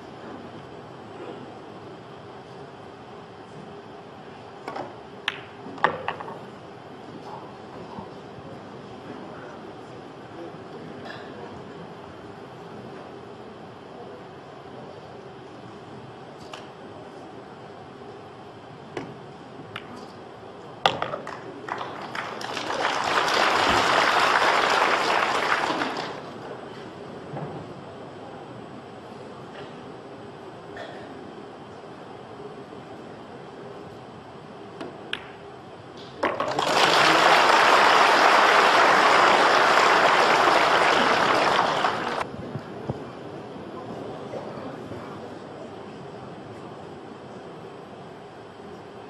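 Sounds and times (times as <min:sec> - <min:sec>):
cue striking ball: 0:20.9 - 0:21.4, 0:36.2 - 0:36.6
billiard balls clicking: 0:20.9 - 0:22.5, 0:36.2 - 0:36.8
pool balls clicking: 0:20.9 - 0:22.6, 0:36.2 - 0:42.2
audience applause: 0:21.7 - 0:26.4, 0:36.4 - 0:42.2.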